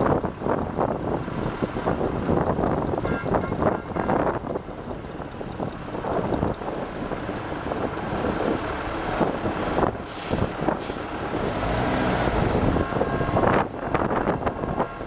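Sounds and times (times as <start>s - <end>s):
wind on microphone: 0.0s - 15.0s
lorry engine running: 4.2s - 10.0s.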